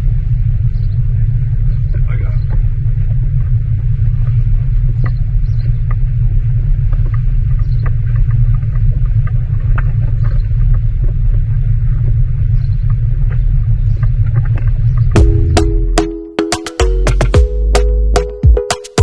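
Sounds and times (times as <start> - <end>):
wind buffeting microphone: 0.0 - 15.2.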